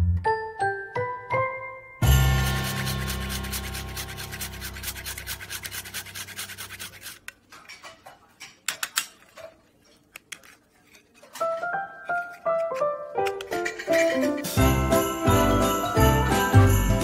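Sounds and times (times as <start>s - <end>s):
nutmeg rasping on metal grater: 2.4s - 7.3s, 9.9s - 14.6s.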